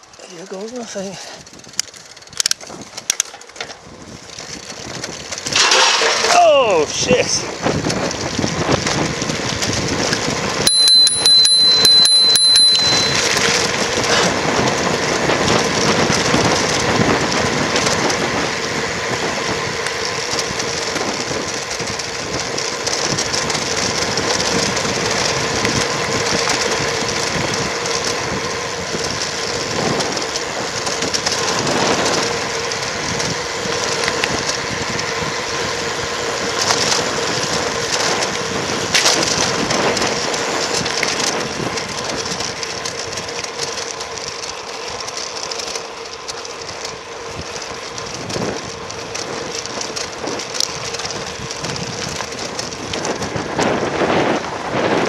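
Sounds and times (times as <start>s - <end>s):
wind rushing over microphone: 0.0s - 45.1s, 46.5s - 55.0s
tyre noise on road: 0.0s - 55.0s
high ringing tone with clicks: 10.7s - 13.8s.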